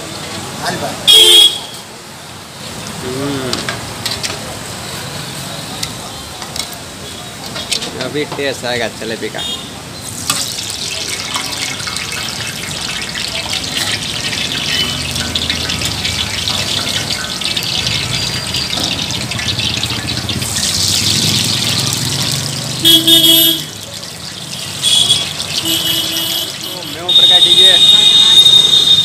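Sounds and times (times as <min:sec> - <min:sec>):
hot oil sizzling: 0:00.0 - 0:29.0
loud horn-like tone: 0:01.1 - 0:01.8, 0:22.8 - 0:23.7, 0:24.8 - 0:29.0.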